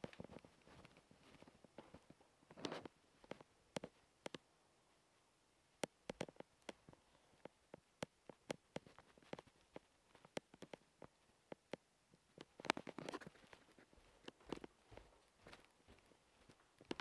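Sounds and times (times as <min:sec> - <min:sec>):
footsteps on hardwood floor: 0:13.1 - 0:17.0.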